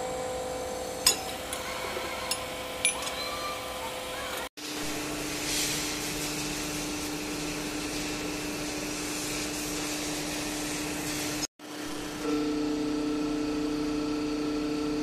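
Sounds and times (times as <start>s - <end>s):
hiss: 4.7s - 11.5s.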